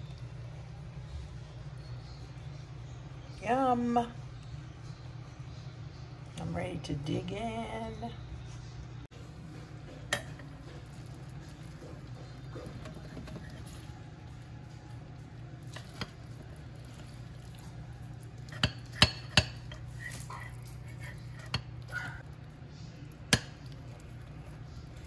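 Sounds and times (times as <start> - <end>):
steady low hum: 0.0 - 25.0
metal spatula scraping ceramic: 11.5 - 13.9, 15.7 - 22.2.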